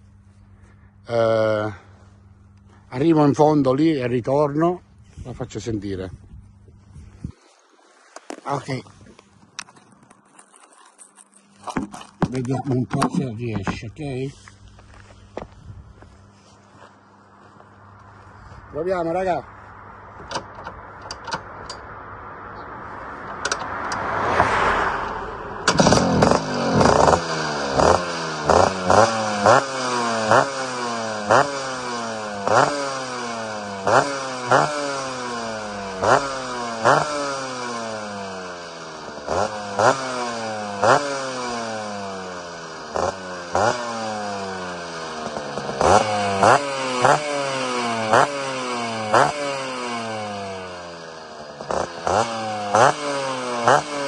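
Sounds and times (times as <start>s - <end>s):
scooter engine revving: 23.4s - 54.0s.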